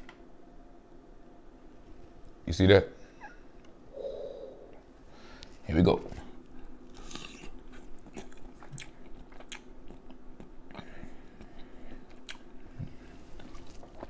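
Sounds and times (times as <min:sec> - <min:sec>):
person chewing with wet smacks: 0:06.9 - 0:14.0.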